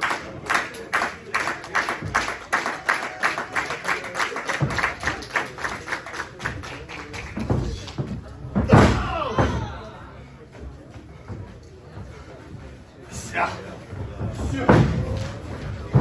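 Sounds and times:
audience rhythmic clapping: 0.0s - 8.2s.

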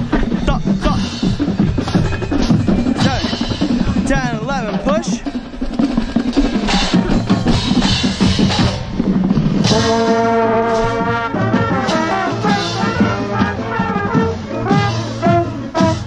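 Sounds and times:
marching band percussion hits: 0.0s - 16.0s
brass section sustained chords: 9.6s - 16.0s.

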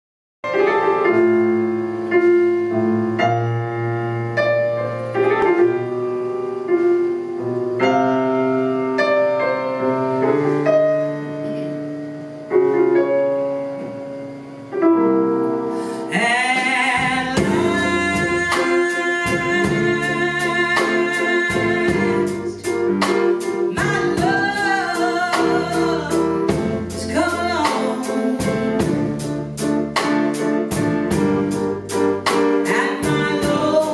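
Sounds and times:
grand piano chords: 0.4s - 33.9s
woman singing: 16.1s - 29.0s, 32.6s - 33.9s
drums and cymbals: 16.5s - 33.9s
electric bass: 16.9s - 33.9s.

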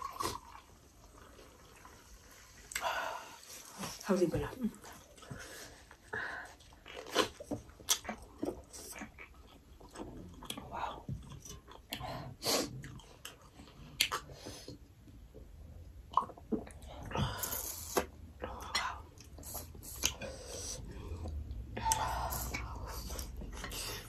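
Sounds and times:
chewing and mouth sounds: 4.8s - 15.2s, 16.0s - 24.0s.

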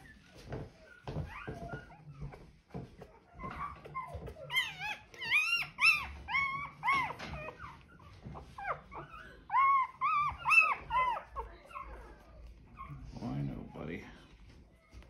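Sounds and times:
puppy crying high-pitched: 3.2s - 13.0s.

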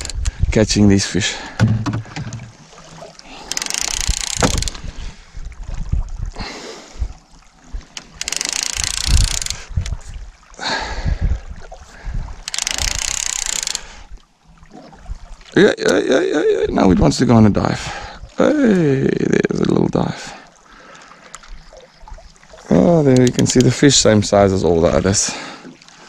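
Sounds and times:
low knocks and bumps: 1.6s - 2.6s
fishing reel whirring: 3.3s - 4.9s, 8.0s - 10.0s, 12.4s - 14.1s.

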